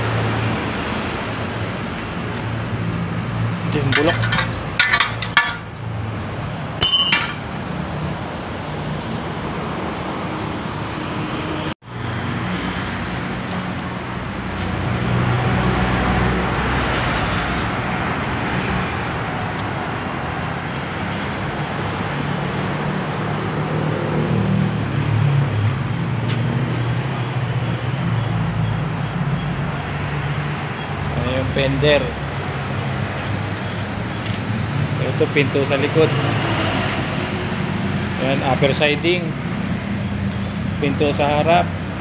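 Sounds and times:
metal brackets clinking: 3.7 - 5.8, 6.8 - 7.6.

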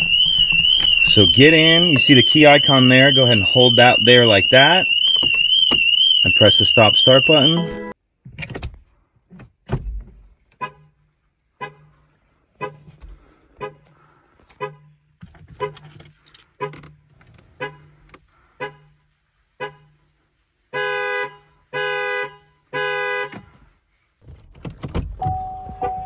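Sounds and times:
car alarm horn toots: 0.0 - 8.0, 20.8 - 23.4
loud car horn blasts: 20.8 - 23.3.

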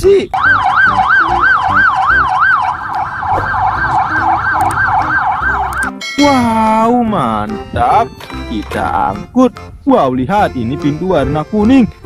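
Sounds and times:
police sirens yelping: 0.3 - 6.8.

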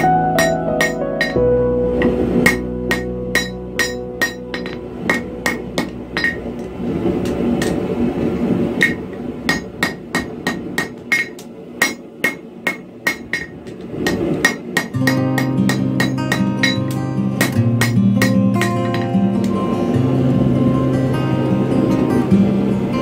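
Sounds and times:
hammer striking steel on anvil: 0.0 - 1.4, 2.4 - 7.8, 8.8 - 19.5.

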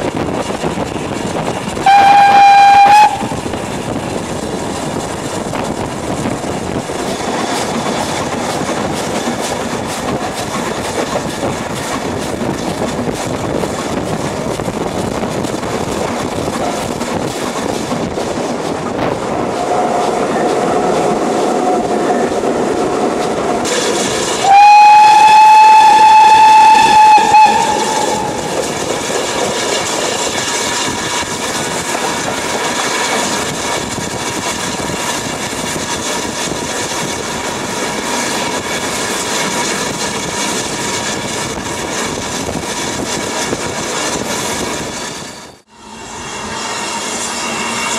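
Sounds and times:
steam locomotive rumbling and clattering: 0.0 - 47.9
steam whistle blowing: 1.8 - 3.3, 24.4 - 28.5, 45.7 - 47.9.

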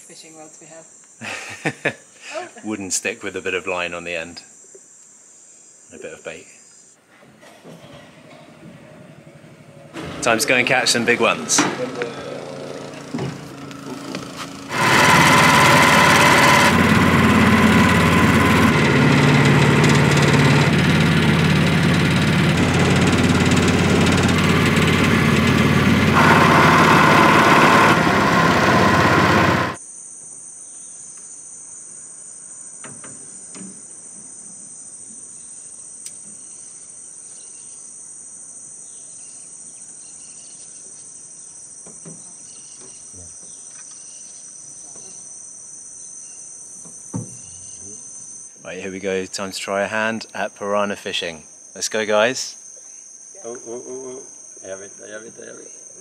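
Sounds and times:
boat engine running: 8.0 - 29.8
high-pitched insects shrilling: 29.8 - 56.0.

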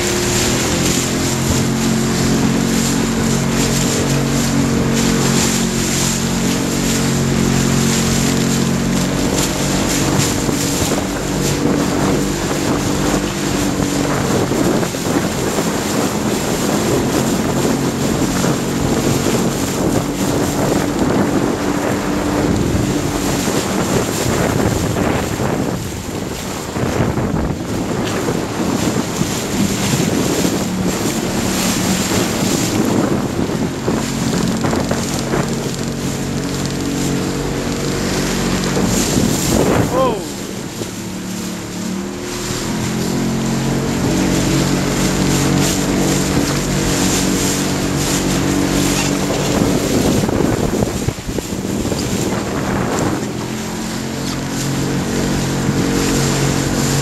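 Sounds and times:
motorboat engine humming: 0.0 - 57.0
water rushing and spray: 0.0 - 57.0
wind rumble on microphone: 0.0 - 57.0.

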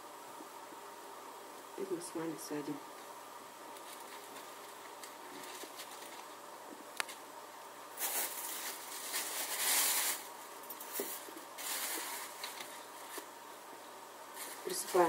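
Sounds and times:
plastic bag crinkling: 3.8 - 6.4, 8.0 - 13.3, 14.3 - 15.0.

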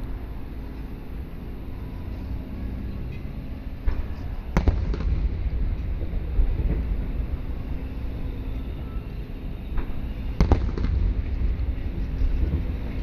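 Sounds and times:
sharp firework bang: 3.8 - 7.1, 9.8 - 11.3
distant fireworks booms: 3.8 - 8.0, 9.6 - 13.0.

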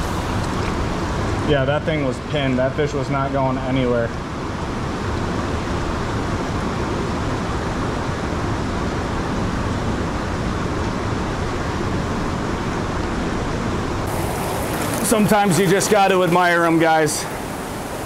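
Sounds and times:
river current rushing: 11.2 - 18.0.

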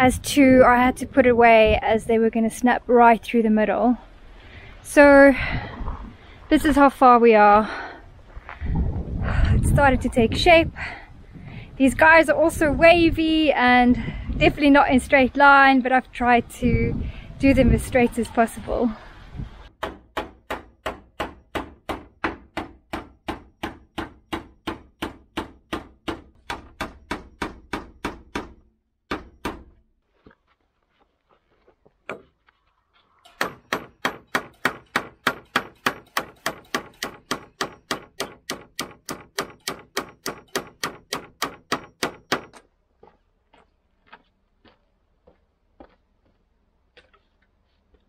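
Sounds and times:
hammer striking nails into wood: 19.8 - 29.8, 33.3 - 42.6.

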